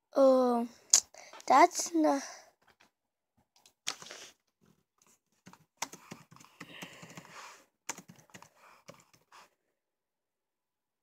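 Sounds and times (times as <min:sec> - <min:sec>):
keyboard typing: 0:05.4 - 0:09.3.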